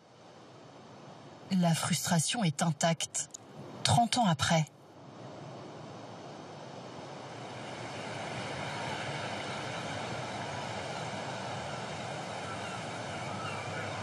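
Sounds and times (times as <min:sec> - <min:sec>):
steady rushing ambient noise: 0:00.0 - 0:14.0
faint bird call: 0:12.4 - 0:14.0.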